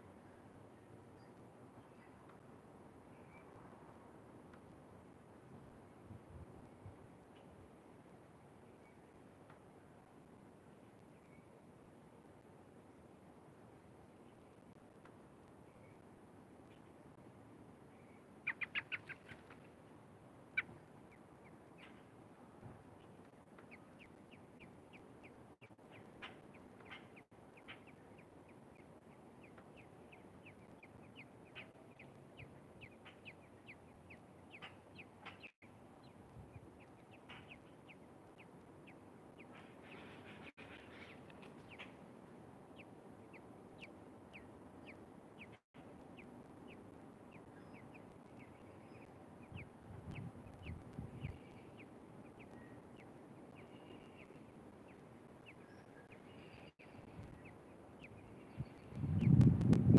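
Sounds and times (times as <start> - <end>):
nestlings peeping: 18.0 - 19.7, 22.9 - 42.0, 42.7 - 59.9.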